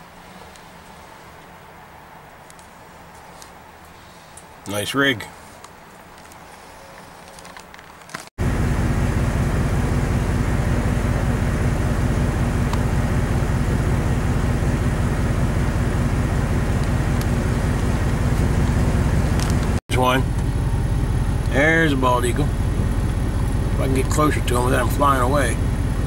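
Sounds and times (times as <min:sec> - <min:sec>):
vehicle engine running: 0:08.4 - 0:26.0.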